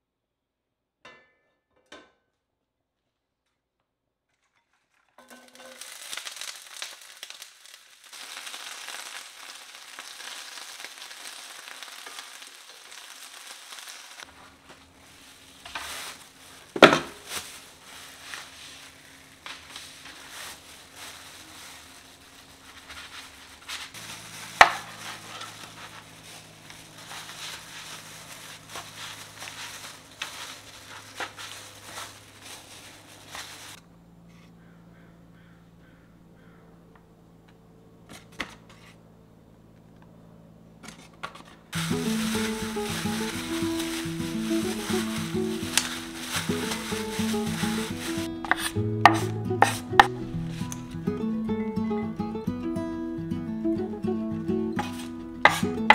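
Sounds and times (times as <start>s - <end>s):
food sizzling in a pan: 5.3s - 14.3s, 41.8s - 48.7s.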